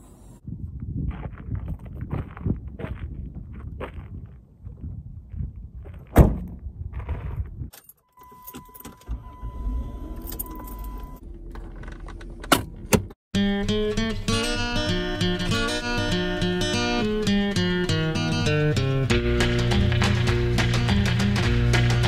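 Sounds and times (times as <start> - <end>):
high warning tone: 8.1 - 11.2.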